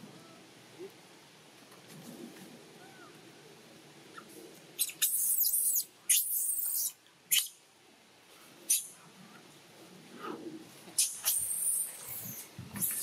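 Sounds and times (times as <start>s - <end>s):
monkey screeching squeals: 4.8s - 7.5s, 11.0s - 13.0s.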